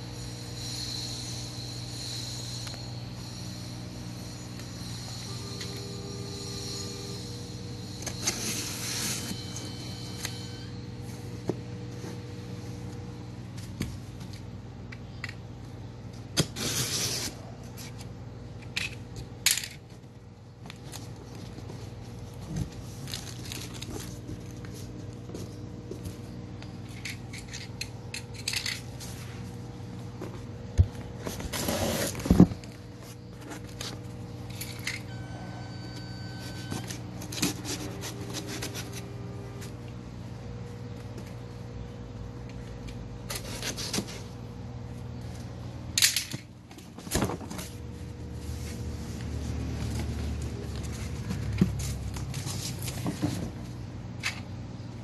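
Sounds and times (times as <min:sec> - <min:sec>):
steady low hum: 0:00.0 - 0:55.0
cardboard box scraping and ripping: 0:16.4 - 0:17.6, 0:31.3 - 0:32.7.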